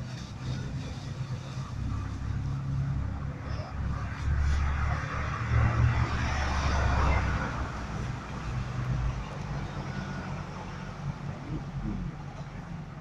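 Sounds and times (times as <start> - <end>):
low machinery rumble: 0.0 - 13.0.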